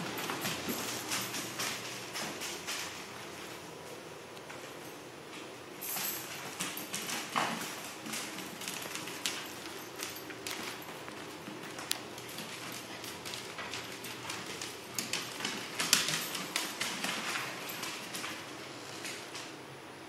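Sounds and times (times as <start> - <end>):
dog claws clicking on floor: 0.0 - 3.6, 4.3 - 19.6.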